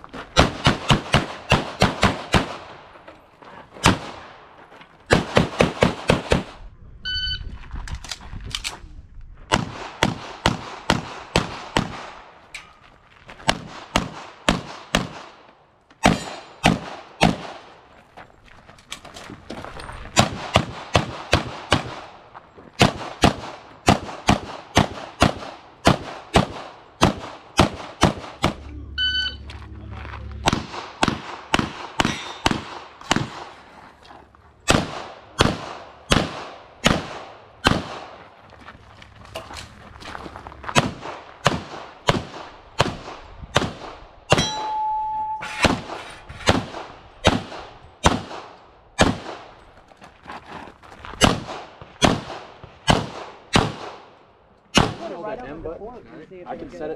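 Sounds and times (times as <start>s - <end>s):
rapid pistol shots: 0.4s - 2.7s, 9.5s - 12.2s, 13.5s - 15.4s, 16.0s - 17.7s, 22.8s - 28.6s, 30.5s - 33.5s, 34.7s - 38.2s, 40.8s - 44.4s, 45.6s - 49.5s, 51.2s - 54.1s, 54.7s - 55.1s
brief steady tone: 7.0s - 7.6s, 28.7s - 30.0s, 44.4s - 45.6s.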